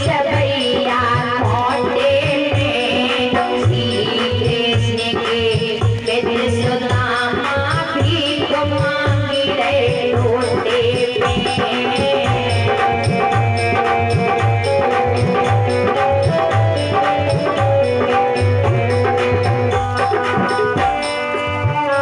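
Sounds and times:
hand drum beat: 0:00.0 - 0:22.0
held melody notes: 0:11.2 - 0:22.0.

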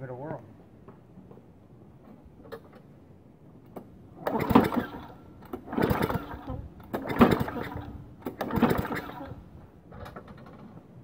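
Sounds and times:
lawnmower engine pull-start cranking: 0:03.7 - 0:11.0.

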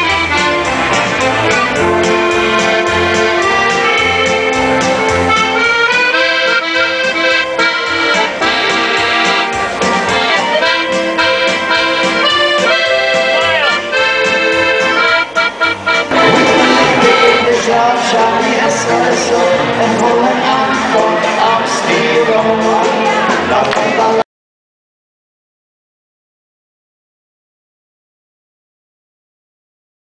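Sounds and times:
button accordions playing lively tune: 0:03.4 - 0:09.4, 0:15.0 - 0:17.5.

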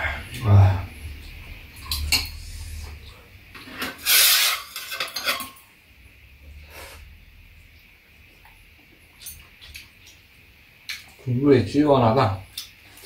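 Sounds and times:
spoons clinking against bowls: 0:04.7 - 0:05.6.

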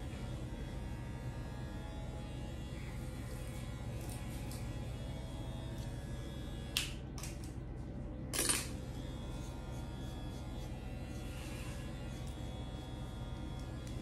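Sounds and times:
razor scrape: 0:08.4 - 0:14.0.

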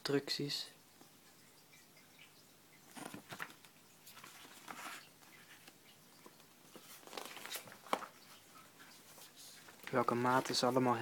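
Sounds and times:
paper rustling: 0:02.9 - 0:11.0.

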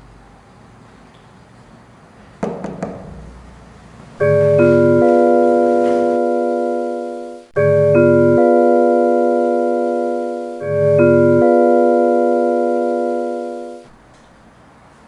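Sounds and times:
knocks on a door: 0:02.4 - 0:03.2
electronic keyboard chord: 0:04.2 - 0:14.0.

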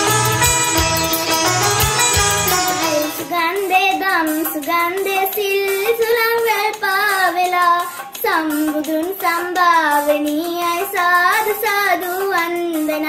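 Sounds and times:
instrumental intro with drums: 0:00.0 - 0:11.6
girl singing devotional song: 0:02.8 - 0:13.0.

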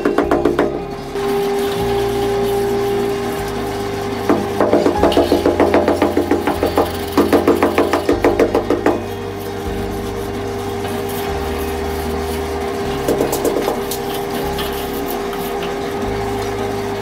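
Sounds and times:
wooden straightedge scraping mortar: 0:04.3 - 0:16.5.

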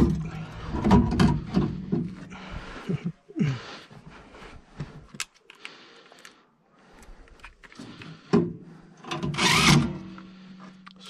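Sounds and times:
faint handling clicks: 0:05.0 - 0:08.2
cordless drill driving screws: 0:09.2 - 0:10.1.

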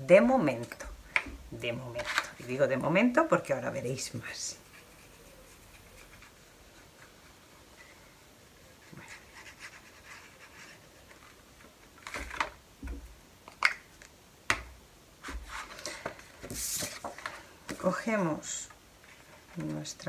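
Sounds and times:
paper rustling: 0:15.2 - 0:18.0.

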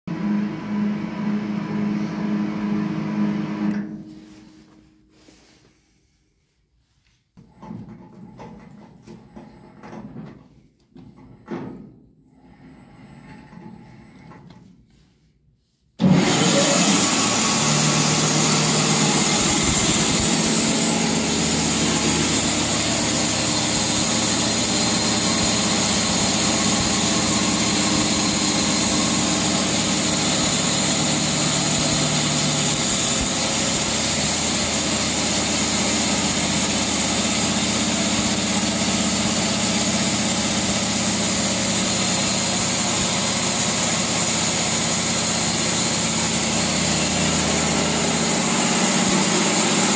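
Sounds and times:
band sawmill running: 0:00.1 - 0:03.9, 0:16.0 - 0:49.9
low hum: 0:16.9 - 0:34.8.

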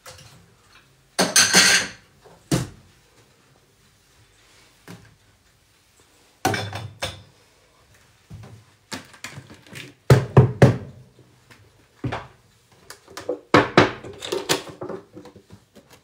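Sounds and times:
plastic kitchenware clattering: 0:01.2 - 0:02.0, 0:13.0 - 0:16.0.

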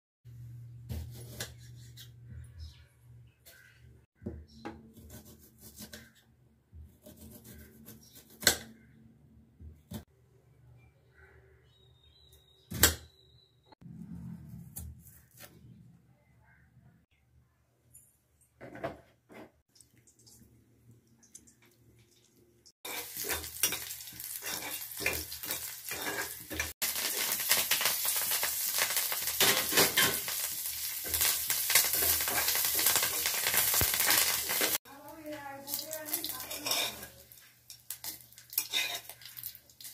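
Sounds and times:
onion skin rubbing: 0:14.4 - 0:15.7
spices sizzling in hot oil: 0:21.2 - 0:39.9
spatula stirring: 0:22.8 - 0:26.8, 0:36.2 - 0:39.9.

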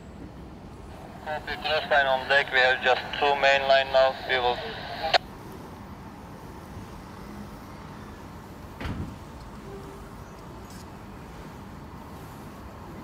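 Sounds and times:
boat engines humming: 0:00.7 - 0:05.2.

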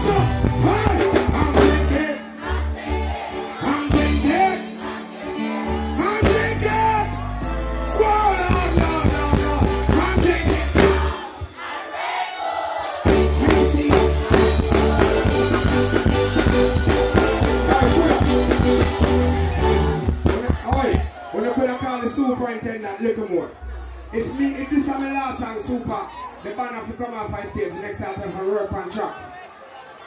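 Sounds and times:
heavy bass: 0:00.0 - 0:05.0, 0:05.6 - 0:11.5, 0:13.1 - 0:21.1
person singing: 0:00.0 - 0:11.3, 0:13.0 - 0:16.0
live reggae band: 0:00.0 - 0:30.0.

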